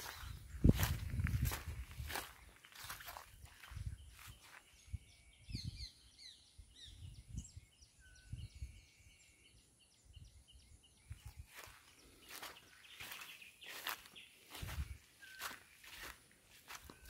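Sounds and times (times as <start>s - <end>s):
footsteps in grass: 0.0s - 4.8s, 11.2s - 17.0s
small birds chirping: 0.0s - 17.0s.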